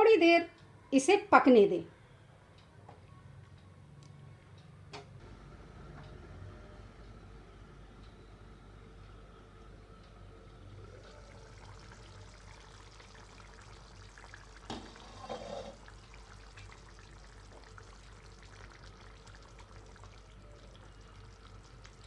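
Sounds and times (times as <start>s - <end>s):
curry bubbling: 10.8s - 22.0s.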